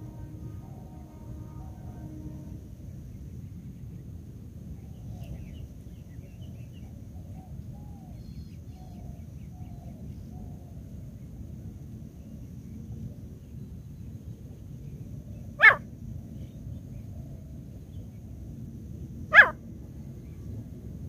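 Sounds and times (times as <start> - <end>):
steady low rumble: 0.0 - 21.0
faint bird calls: 15.6 - 15.8, 19.3 - 19.6.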